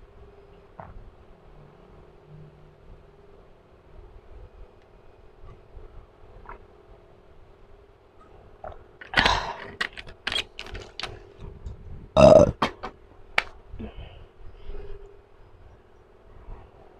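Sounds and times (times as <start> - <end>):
faint steady hum: 0.0 - 16.9
woman burping: 12.2 - 12.7.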